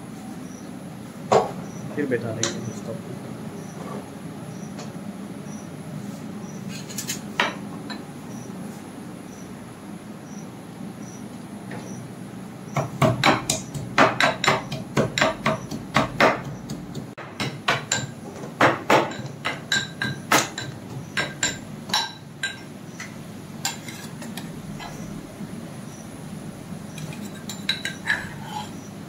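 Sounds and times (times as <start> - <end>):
mortar and pestle pounding: 12.8 - 22.6.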